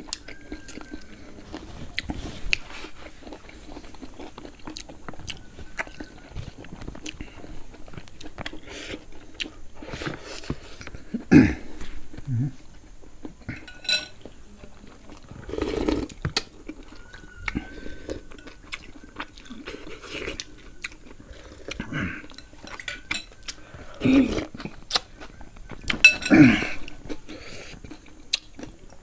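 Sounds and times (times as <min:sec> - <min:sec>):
chewing: 0:00.0 - 0:29.0
spoons clinking on ceramic bowl: 0:13.6 - 0:14.2.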